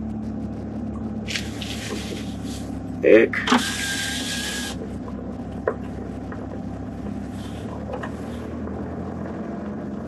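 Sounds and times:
car engine and tyres hum: 0.0 - 10.0.

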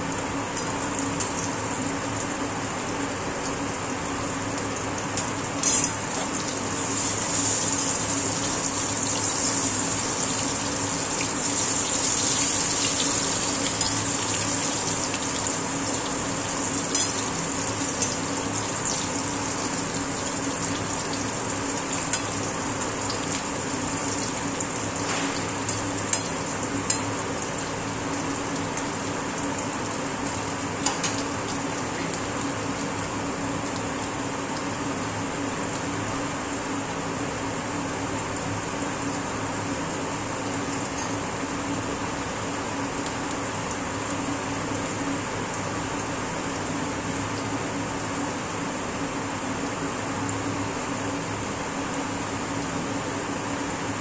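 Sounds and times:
slices sizzling in oil: 0.6 - 33.0.

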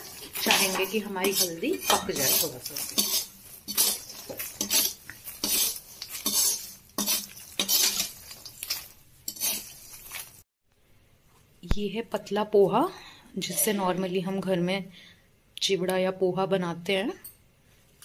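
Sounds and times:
spatula scraping dry mix in pan: 0.0 - 10.4.

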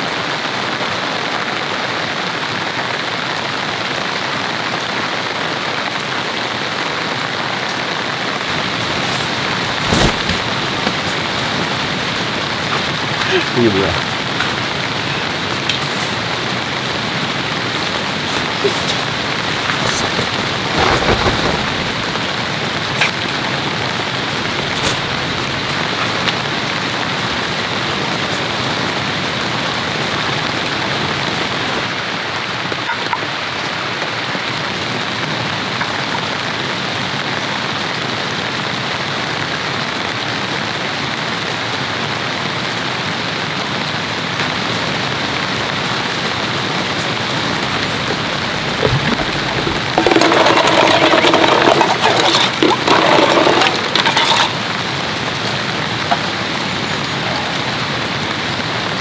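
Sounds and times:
heavy rain on tarp: 0.0 - 59.0
raindrops tapping: 6.6 - 31.9, 44.2 - 58.8.

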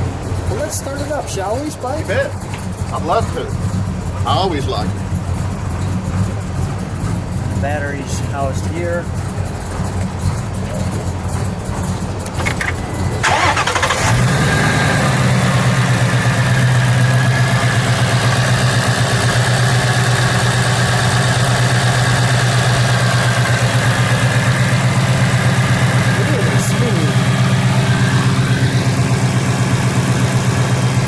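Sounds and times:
car engine starting and idling: 0.0 - 31.0.

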